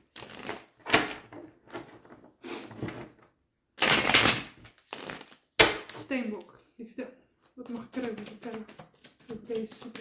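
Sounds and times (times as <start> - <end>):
cards being shuffled: 0.1 - 1.2, 3.8 - 6.5, 7.4 - 10.0.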